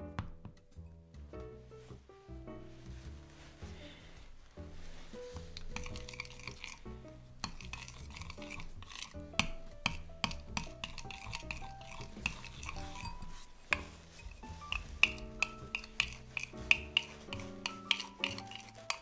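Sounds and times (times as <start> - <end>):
metal spoon scraping a bowl: 5.4 - 19.0.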